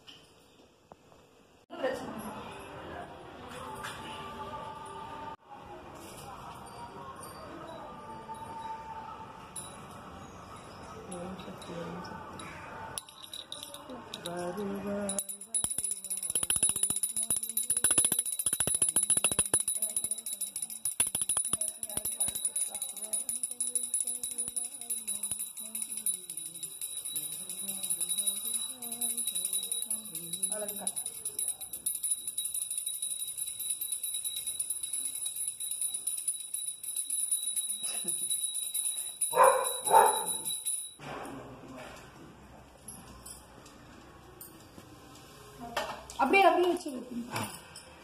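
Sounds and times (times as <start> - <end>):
brass hand bell ringing rapidly: 15.0 - 41.0.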